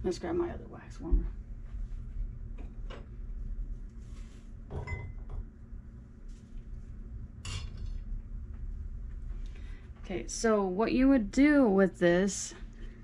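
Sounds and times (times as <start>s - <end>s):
ceramic bowl clinking: 4.8s - 5.3s.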